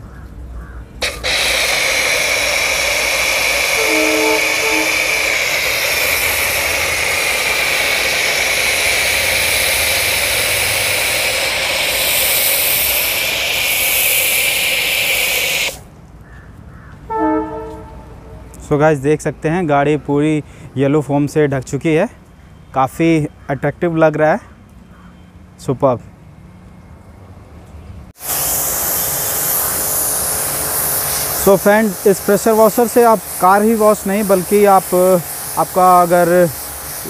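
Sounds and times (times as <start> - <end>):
pressure washer spraying hiss: 1.0 - 15.9, 28.2 - 37.0.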